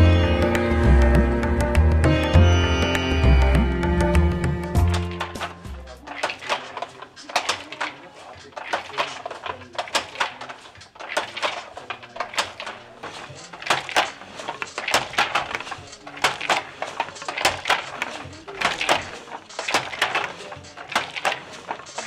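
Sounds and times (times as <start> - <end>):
handloom clacking: 4.7 - 22.0.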